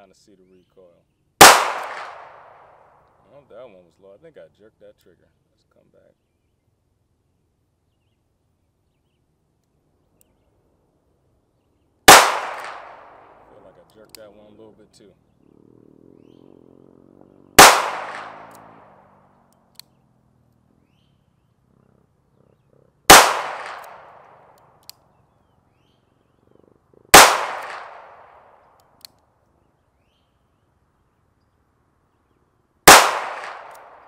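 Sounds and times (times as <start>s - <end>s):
revolver shots with echo: 1.4s - 2.9s, 12.1s - 13.6s, 17.6s - 19.2s, 23.1s - 24.5s, 27.1s - 28.6s, 32.9s - 34.0s.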